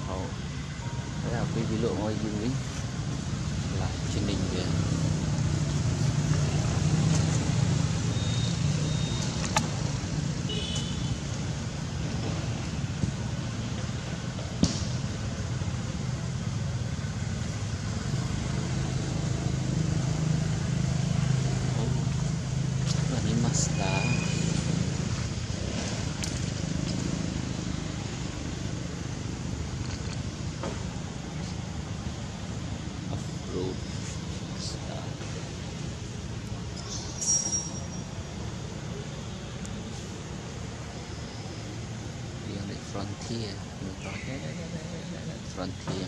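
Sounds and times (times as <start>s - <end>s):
low engine hum: 0.0s - 36.9s
high-pitched chirps: 36.8s - 38.0s.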